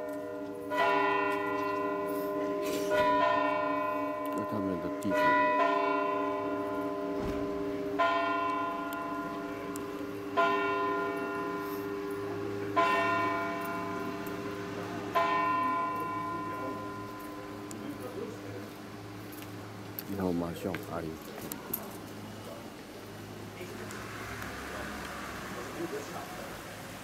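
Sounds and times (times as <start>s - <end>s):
church bell tolling: 0.0s - 19.1s.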